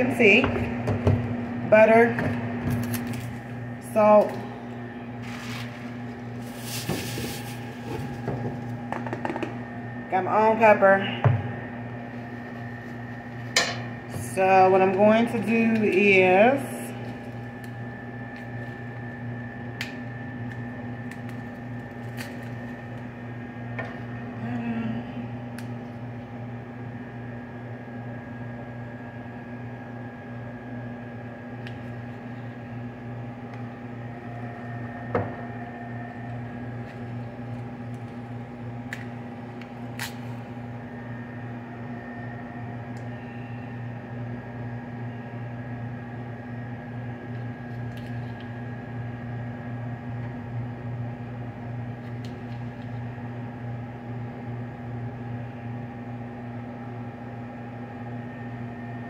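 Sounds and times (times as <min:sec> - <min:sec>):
electrical machine hum: 0:00.0 - 0:59.0
butter packets being peeled: 0:20.4 - 0:23.1.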